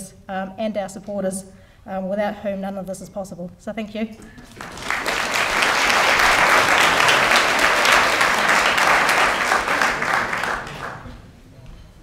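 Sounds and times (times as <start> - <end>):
audience applause: 4.4 - 11.2.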